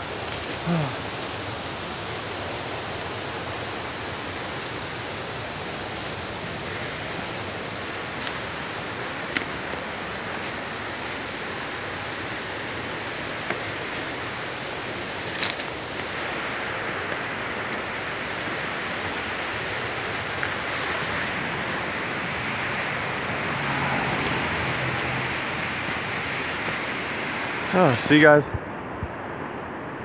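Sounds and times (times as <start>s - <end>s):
creek water rushing: 0.0s - 29.6s
footsteps on rocks: 8.1s - 10.8s, 13.4s - 16.1s, 24.2s - 27.0s.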